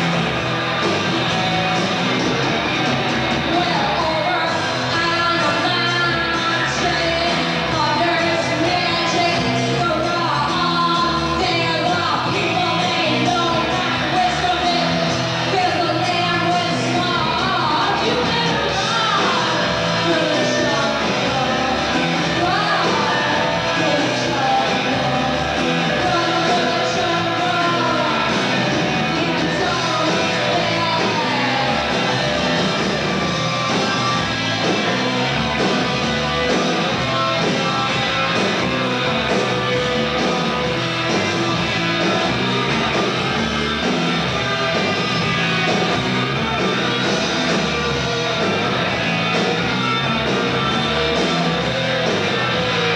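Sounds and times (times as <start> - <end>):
drums: 0.0 - 52.9
electric guitars: 0.0 - 52.9
woman singing and shouting: 3.5 - 14.9, 15.5 - 25.0.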